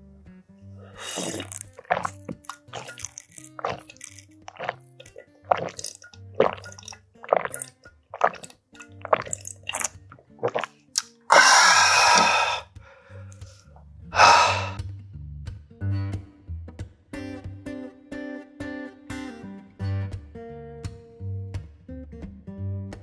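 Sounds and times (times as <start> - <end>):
soft background music: 0.0 - 23.0
breathy exhales: 0.8 - 1.6, 11.3 - 13.6, 14.2 - 14.8
person gulping broth: 0.8 - 12.7, 14.2 - 14.8.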